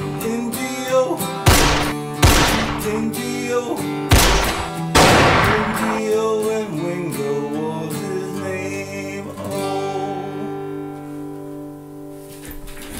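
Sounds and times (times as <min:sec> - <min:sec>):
acoustic guitar chord ringing: 0:00.0 - 0:12.2.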